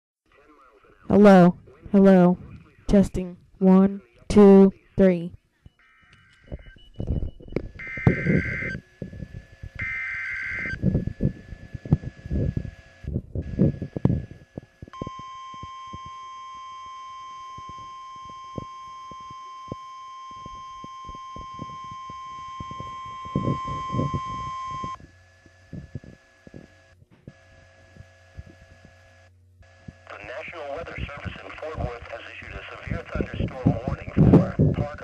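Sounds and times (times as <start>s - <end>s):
faint receiver hum: 0.3s - 35.0s
high alarm tone beep: 5.7s - 25.0s
crackling static: 5.8s - 35.0s.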